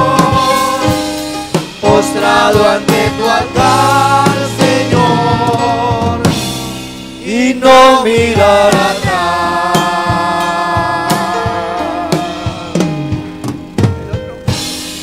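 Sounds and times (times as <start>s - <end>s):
drum hits: 0.0s - 15.0s
keyboard and bass chords: 0.0s - 15.0s
person singing: 1.8s - 6.3s, 7.2s - 12.9s.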